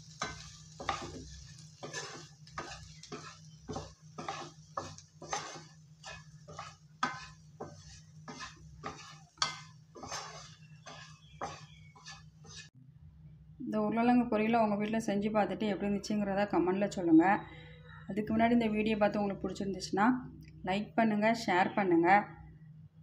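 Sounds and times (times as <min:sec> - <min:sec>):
spatula scraping frying pan: 0:00.0 - 0:12.7.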